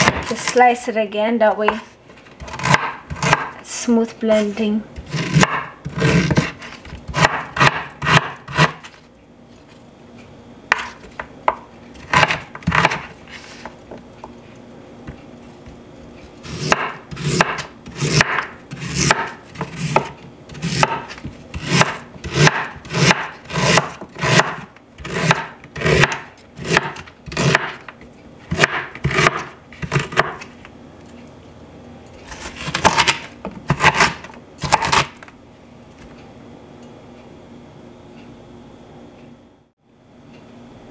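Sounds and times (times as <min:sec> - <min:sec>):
knife chopping on wooden board: 0:00.0 - 0:00.4, 0:01.7 - 0:03.6, 0:04.4 - 0:09.0, 0:10.7 - 0:13.1, 0:16.4 - 0:27.9, 0:28.5 - 0:30.5, 0:32.3 - 0:35.2.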